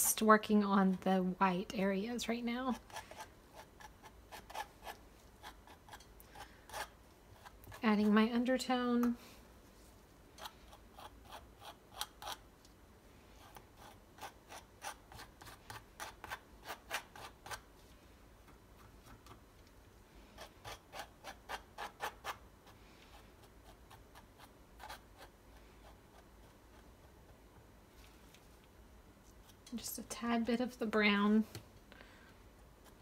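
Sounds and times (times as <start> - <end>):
palette knife scraping canvas: 2.7 - 8.2, 20.4 - 22.4.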